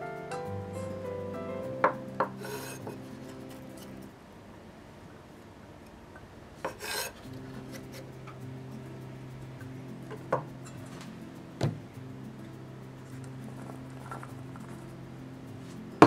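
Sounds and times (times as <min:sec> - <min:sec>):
knife scraping wooden board: 0:02.4 - 0:04.0, 0:06.7 - 0:08.0.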